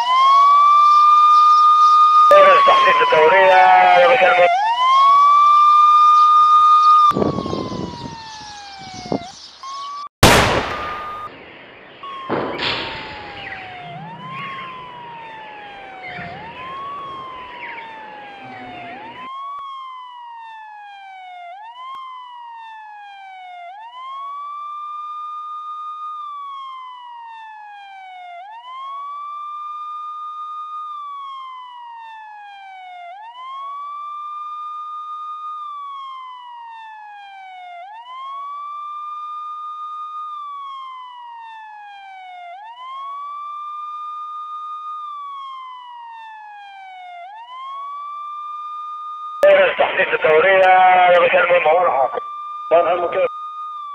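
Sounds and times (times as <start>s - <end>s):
police siren wailing: 0.0s - 11.3s, 12.0s - 53.9s
gunshot: 10.2s - 11.3s, 12.2s - 13.6s.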